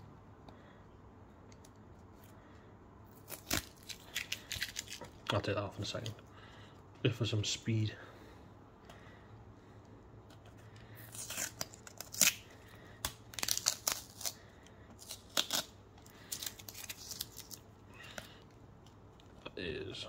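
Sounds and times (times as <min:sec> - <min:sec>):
tape ripping off plastic: 0:03.1 - 0:05.2, 0:11.0 - 0:17.7.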